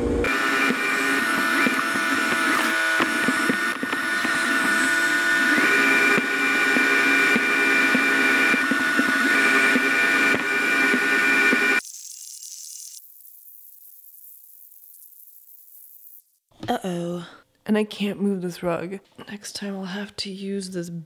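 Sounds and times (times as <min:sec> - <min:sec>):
robot vacuum motor whine: 0:00.0 - 0:16.0
vacuum knocking on floor: 0:00.6 - 0:11.8.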